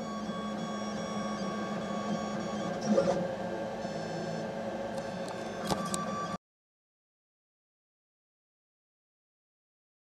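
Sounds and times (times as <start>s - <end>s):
printer stepper motors whining: 0.0s - 6.4s.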